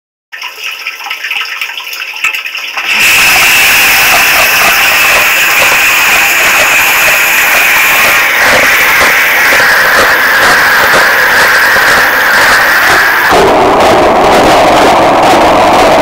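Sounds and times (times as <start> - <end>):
dishwasher water jets spraying: 2.6 - 13.3.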